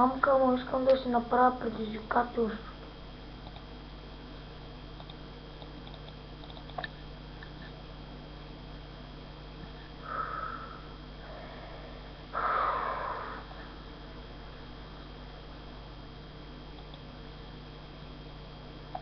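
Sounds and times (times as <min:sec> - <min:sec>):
steady electrical hum: 0:00.0 - 0:19.0
person breathing hard: 0:10.0 - 0:13.8.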